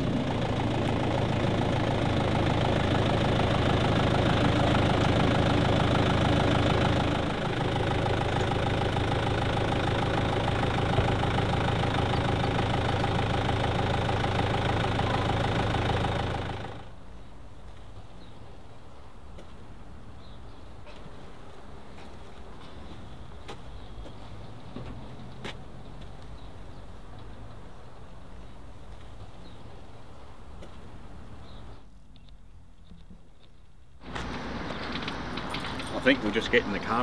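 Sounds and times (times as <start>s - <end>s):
diesel truck engine idling: 0.0s - 17.0s, 34.0s - 37.0s.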